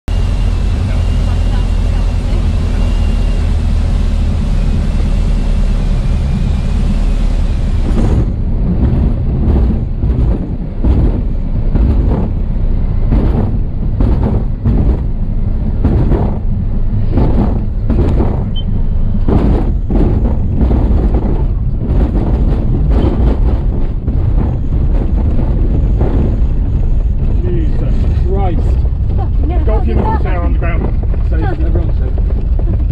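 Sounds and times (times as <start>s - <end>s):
light aircraft engine: 0.1s - 10.5s
wheels thudding on grass runway: 7.8s - 27.8s.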